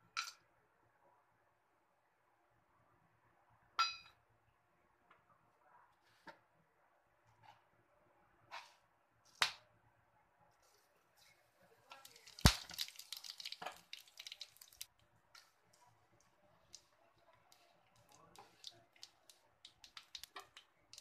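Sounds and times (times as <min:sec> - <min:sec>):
seeds sizzling in hot oil: 0:11.9 - 0:15.5, 0:17.5 - 0:21.0.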